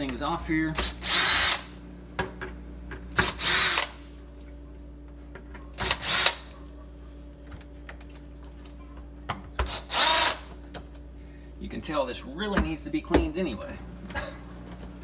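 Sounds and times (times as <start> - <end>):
cordless drill whining: 0.9 - 1.7, 3.3 - 3.9, 9.7 - 10.4.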